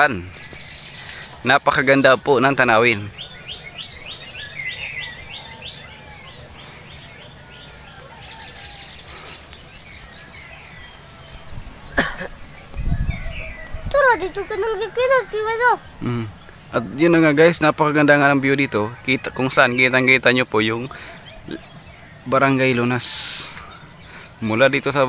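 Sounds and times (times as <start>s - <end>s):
bird chirping: 0.0s - 25.0s
insect chorus: 0.0s - 25.0s
person speaking: 13.9s - 18.0s.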